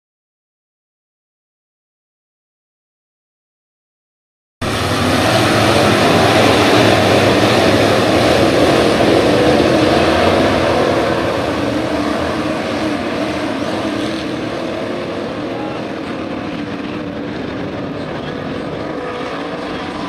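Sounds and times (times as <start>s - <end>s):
race car engines droning: 4.6s - 20.0s.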